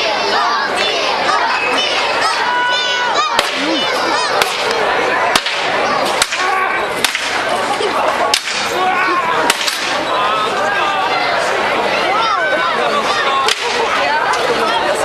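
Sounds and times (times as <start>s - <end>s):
crowd chatter: 0.0s - 15.0s
swords clacking on shields: 5.4s - 7.4s, 8.3s - 8.8s, 9.5s - 10.0s, 13.5s - 13.8s.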